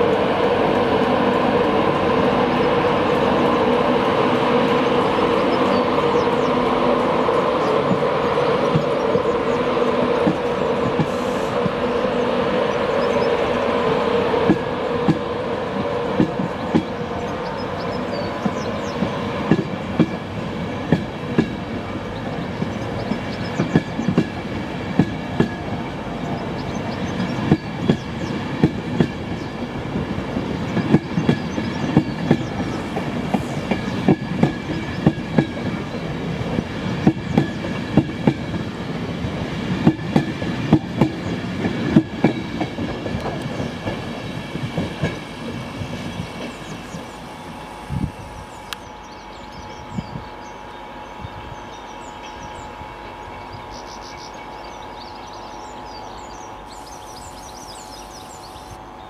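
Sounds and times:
train coaches rumbling past: 0.0s - 59.0s
faint high whine: 46.7s - 59.0s.

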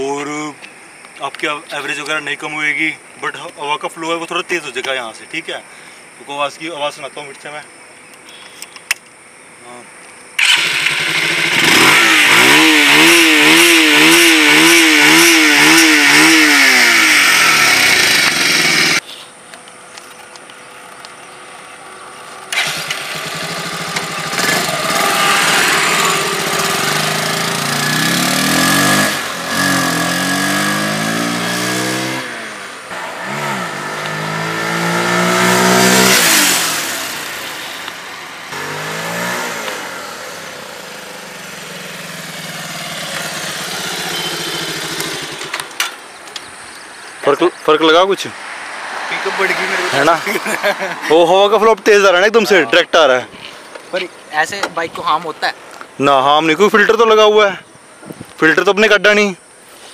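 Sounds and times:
motorcycle accelerating: 10.4s - 19.0s, 20.9s - 47.1s, 47.8s - 52.7s
motorcycle engine revving: 10.4s - 19.0s, 22.2s - 46.3s.

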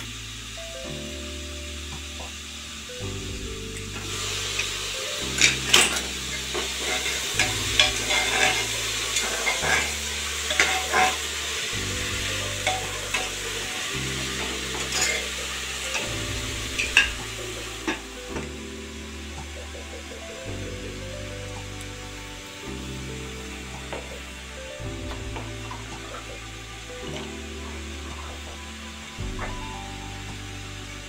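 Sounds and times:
vegetables sizzling in oil: 0.0s - 31.0s
metal spatula scraping pot: 5.4s - 11.7s, 12.4s - 18.1s
spatula clinking against pot: 6.8s - 11.2s.

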